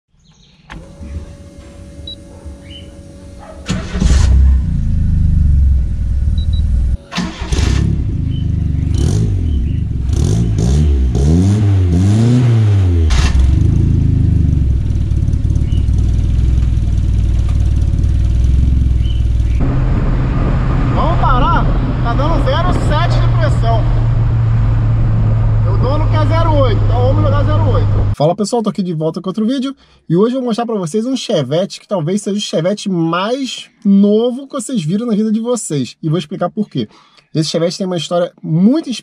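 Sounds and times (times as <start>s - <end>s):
car engine starting and idling: 0.5s - 28.2s
engine revving: 0.7s - 28.2s.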